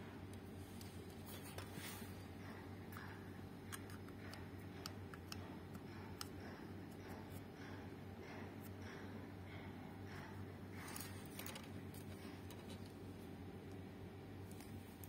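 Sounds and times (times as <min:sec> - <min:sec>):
steady low hum: 0:00.0 - 0:15.0
soldering ticks and clicks: 0:02.5 - 0:09.1.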